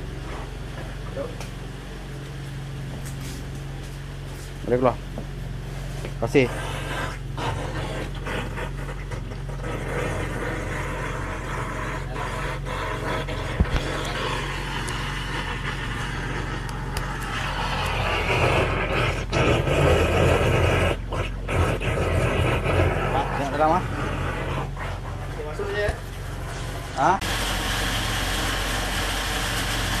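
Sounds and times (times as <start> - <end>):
pump humming: 5.1 - 30.0
high-pressure water jet spraying: 6.4 - 30.0.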